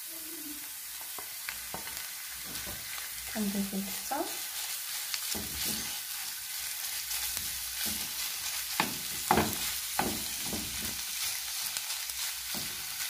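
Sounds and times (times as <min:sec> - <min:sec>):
meat sizzling in frying pan: 0:00.0 - 0:13.0
wooden spoon scraping pan: 0:04.0 - 0:11.4.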